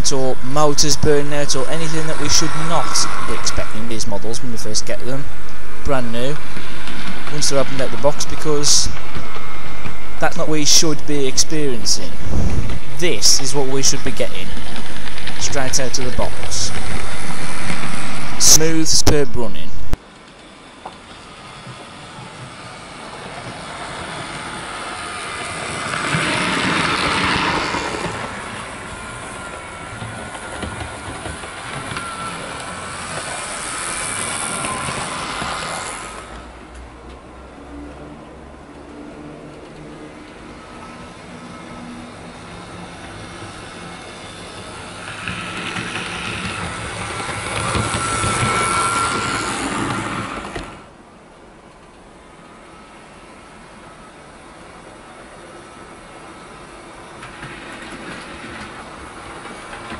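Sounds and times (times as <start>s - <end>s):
model train motor whirring: 0.0s - 19.2s, 20.1s - 36.8s, 39.7s - 51.0s
wheels clicking on track: 20.0s - 52.2s, 54.2s - 59.9s.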